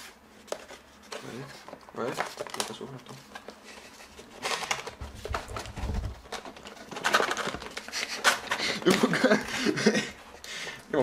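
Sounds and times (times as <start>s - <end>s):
cardboard flaps scraping: 3.8s - 8.1s.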